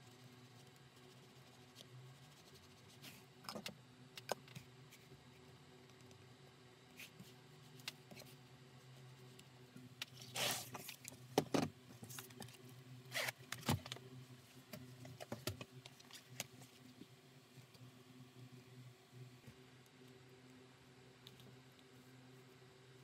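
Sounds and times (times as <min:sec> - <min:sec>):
low steady hum: 0:00.0 - 0:23.0
metal zipper zipping: 0:13.1 - 0:13.4.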